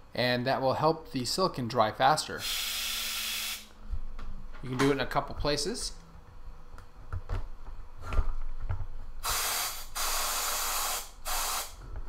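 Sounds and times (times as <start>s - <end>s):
canned air hissing: 2.3s - 3.8s, 9.2s - 11.8s.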